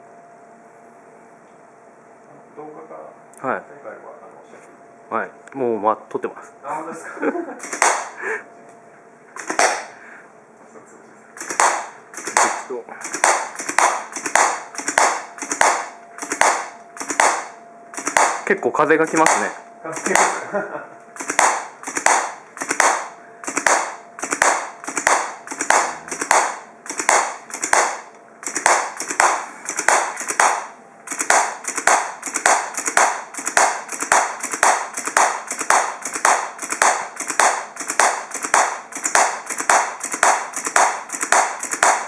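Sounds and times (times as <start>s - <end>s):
clapping machine clapping: 7.6s - 8.2s, 9.4s - 9.9s, 11.4s - 18.4s, 19.1s - 20.4s, 21.2s - 42.0s.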